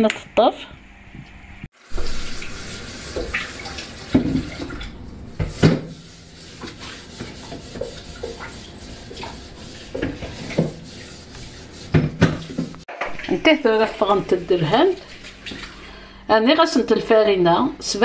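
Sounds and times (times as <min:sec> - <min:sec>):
dishes and utensils knocking: 0:11.9 - 0:13.2.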